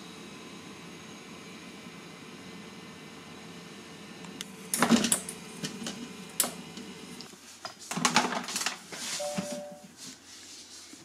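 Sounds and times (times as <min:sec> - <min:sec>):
short beep: 0:09.2 - 0:09.8
faint steady hum: 0:09.2 - 0:10.4.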